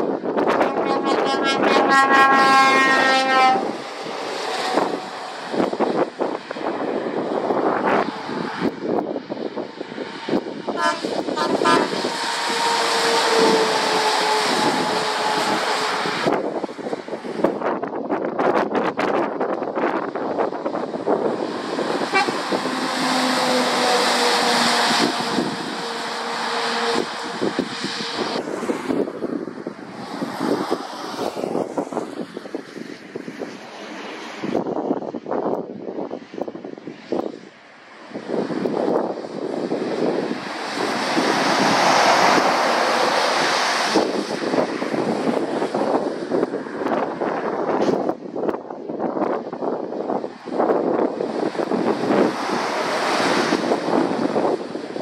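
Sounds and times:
wind buffeting microphone: 0:00.0 - 0:55.0
tyres hissing on wet road: 0:01.7 - 0:17.8, 0:19.9 - 0:48.2, 0:48.8 - 0:55.0
tyre spray hiss: 0:39.9 - 0:45.3.

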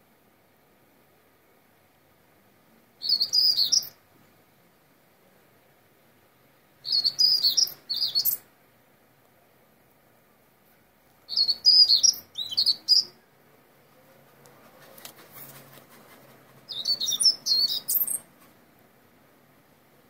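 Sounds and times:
starling singing: 0:03.0 - 0:04.0, 0:06.8 - 0:08.4, 0:11.3 - 0:13.2, 0:16.7 - 0:18.3.

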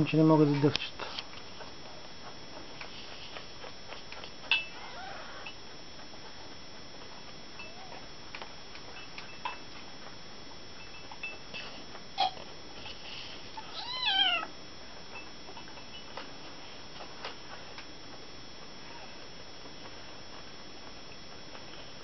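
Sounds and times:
kitten meowing: 0:13.6 - 0:14.5.

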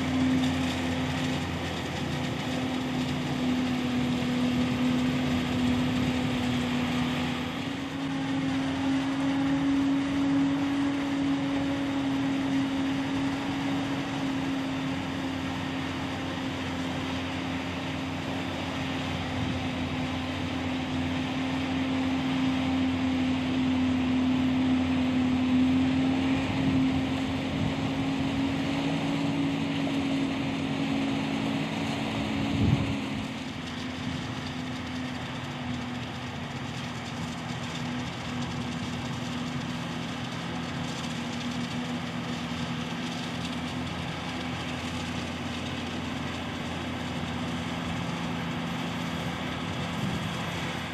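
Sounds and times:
harvester and tractor engines droning: 0:00.0 - 0:50.9.

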